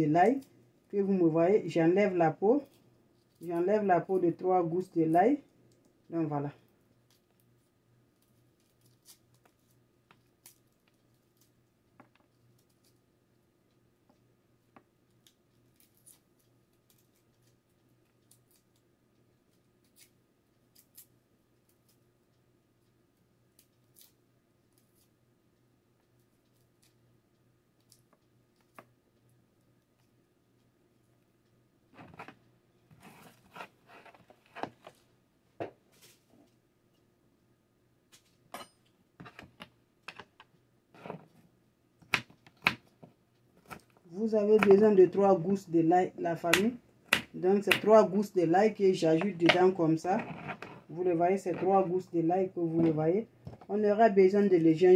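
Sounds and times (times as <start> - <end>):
knife peeling garlic skin: 19.6 - 22.0, 23.5 - 25.1.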